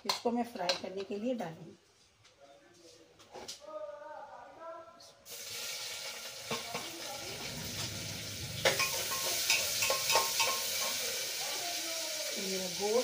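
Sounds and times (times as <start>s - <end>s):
onions sizzling in hot oil: 5.3s - 13.0s
spoon knocking against pot: 8.7s - 11.0s.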